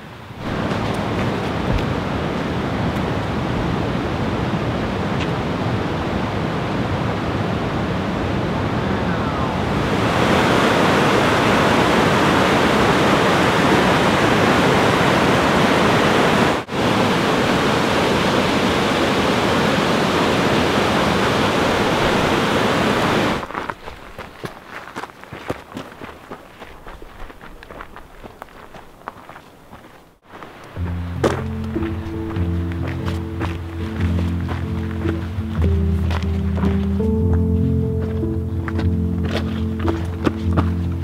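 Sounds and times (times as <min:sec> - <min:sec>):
waterfall rushing water: 0:00.0 - 0:23.5, 0:30.3 - 0:37.2.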